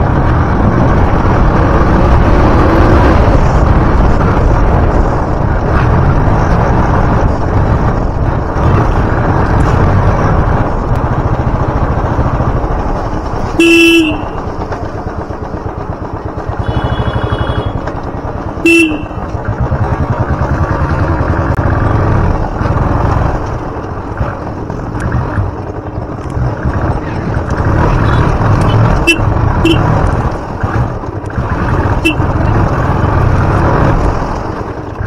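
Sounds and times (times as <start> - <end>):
motorcycle engine running: 0.0 - 35.0
road and wind noise: 0.0 - 35.0
horn blasts: 13.6 - 14.4, 16.6 - 17.9, 18.6 - 19.3, 28.8 - 30.0, 31.8 - 32.4.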